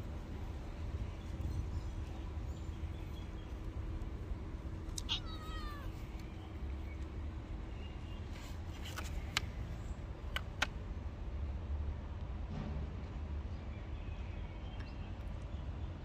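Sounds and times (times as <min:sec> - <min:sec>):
steady low rumble: 0:00.0 - 0:16.0
cat meowing: 0:05.0 - 0:06.0.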